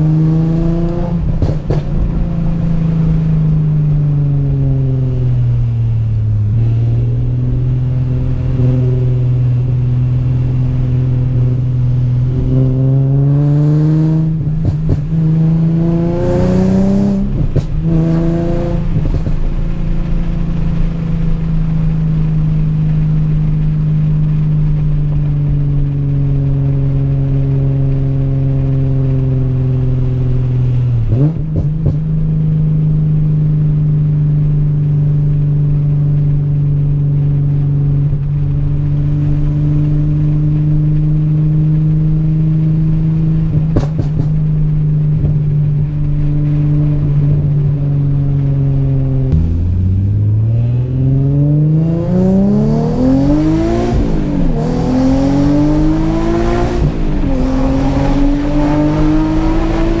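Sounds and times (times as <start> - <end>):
car engine revving: 0.0 - 60.0
exhaust pops and crackles: 1.0 - 2.6, 14.2 - 15.4, 17.0 - 50.7.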